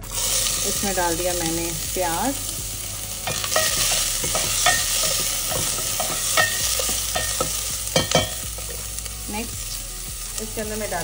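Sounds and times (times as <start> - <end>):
onion sizzling in oil: 0.0 - 11.0
spatula knocking and scraping pot: 3.2 - 8.8.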